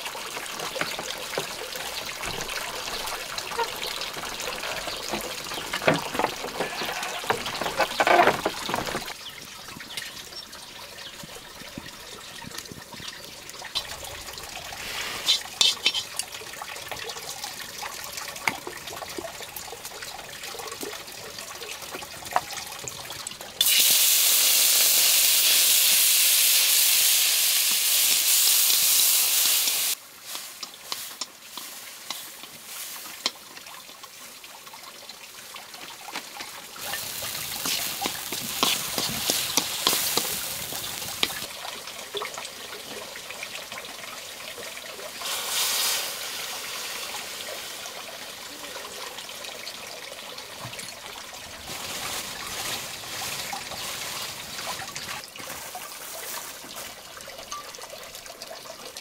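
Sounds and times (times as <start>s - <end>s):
water trickling: 0.0s - 23.8s, 29.9s - 59.0s
loud steady hiss: 23.6s - 31.2s.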